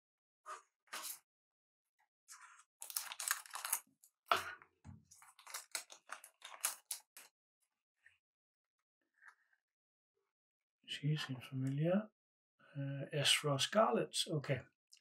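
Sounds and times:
foil wrapper tearing and crinkling: 2.8s - 3.9s, 5.2s - 7.3s.

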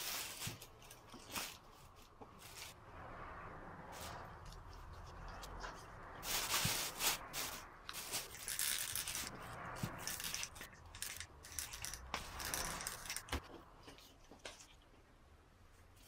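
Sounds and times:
plastic bag crinkling: 6.2s - 13.4s.

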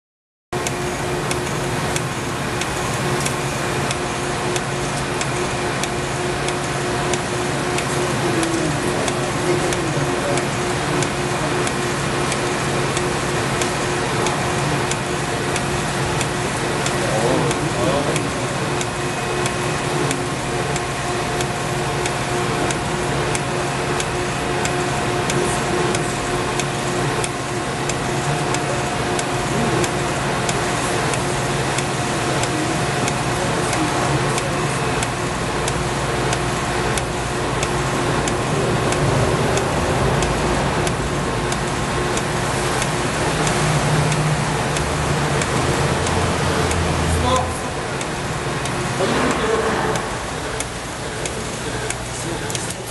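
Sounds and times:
continuous fine ticking: 0.6s - 52.9s
machine humming: 0.6s - 52.9s.

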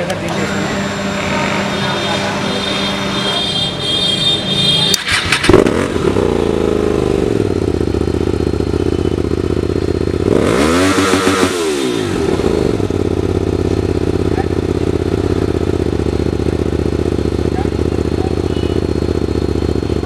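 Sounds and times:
motorcycle engine idling and revving: 0.0s - 20.0s
motorcycle engine starting: 4.6s - 20.0s.

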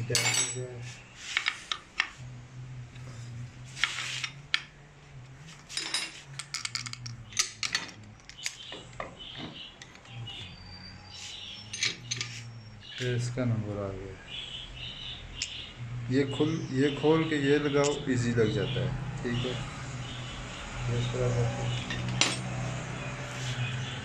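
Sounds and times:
small metal parts clinking: 0.1s - 0.7s, 5.6s - 8.9s, 11.6s - 12.4s, 21.9s - 22.5s.

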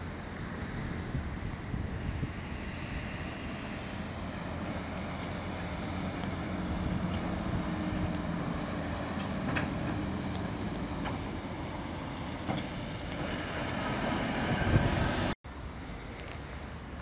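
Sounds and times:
road traffic: 0.0s - 17.0s
lorry diesel engine passing: 2.0s - 15.4s.

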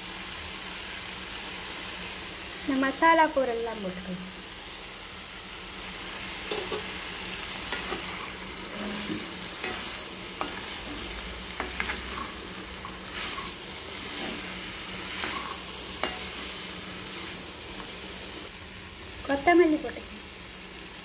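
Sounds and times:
vegetables sizzling in oil: 0.0s - 21.0s
spatula scraping and knocking pan: 7.6s - 18.0s.

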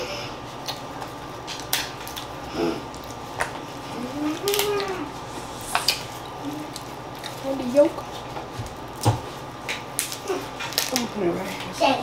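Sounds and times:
eating mouth sounds: 2.2s - 7.4s
person humming: 4.0s - 6.7s
shells cracking and snapping: 4.4s - 5.0s, 8.9s - 11.1s.

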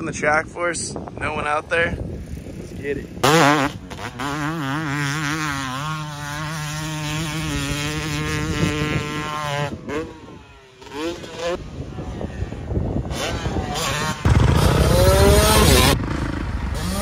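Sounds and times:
dirt bike engine revving: 2.1s - 17.0s.

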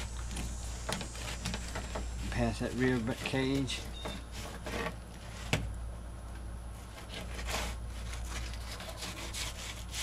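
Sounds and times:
steady low hum: 0.0s - 10.0s
knife scraping and slicing fish: 6.9s - 10.0s.

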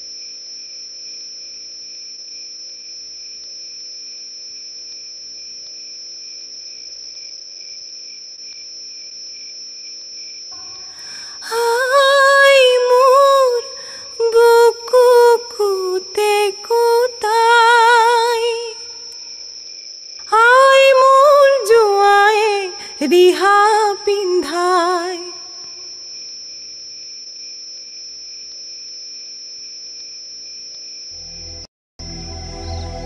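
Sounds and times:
insects chirring: 0.0s - 31.7s
high voice singing: 10.6s - 19.1s, 20.3s - 25.7s.

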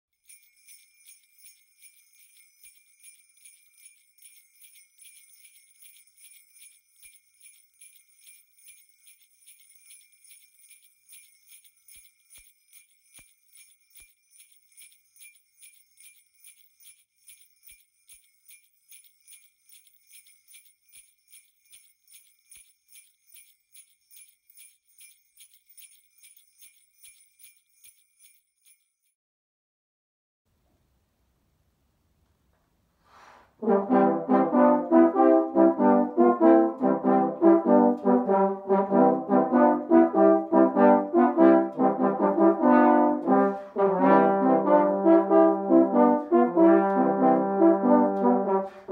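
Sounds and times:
sleigh bells shaken: 0.1s - 29.1s, 33.6s - 48.9s.

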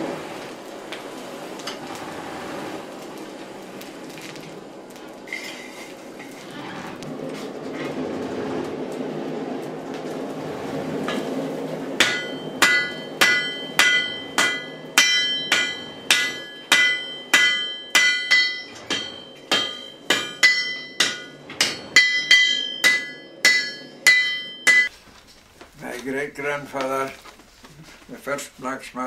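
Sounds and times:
hammer ringing on anvil: 12.0s - 24.9s.

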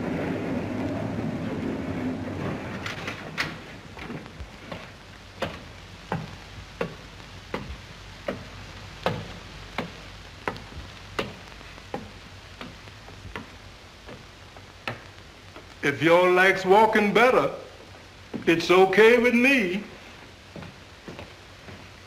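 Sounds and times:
low hum: 0.0s - 15.8s
hard-soled footsteps: 2.3s - 22.0s.

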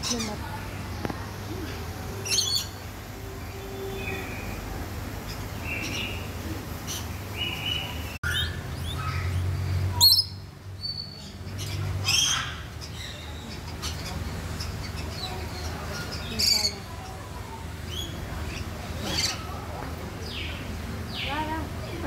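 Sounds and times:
parrots screeching: 11.7s - 12.9s.

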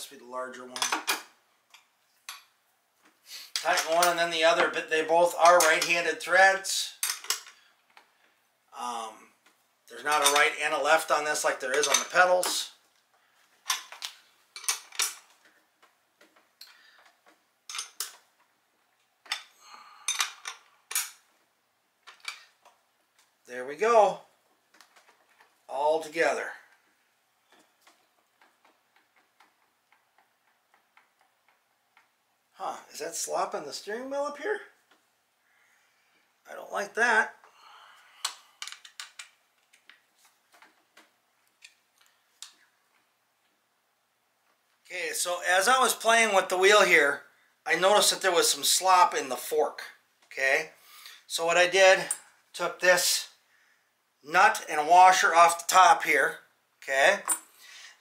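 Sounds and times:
metal wrench clinking on axle nut: 57.2s - 57.5s.

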